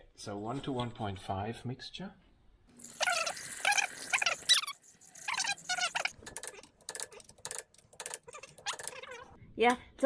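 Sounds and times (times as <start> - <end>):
wrench clicking on metal: 6.2 - 9.0.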